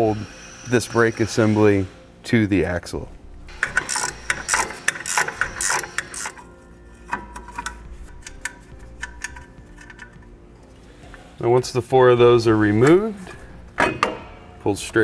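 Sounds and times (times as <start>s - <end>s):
ratcheting wrench clicking: 3.5s - 6.5s, 7.1s - 10.3s.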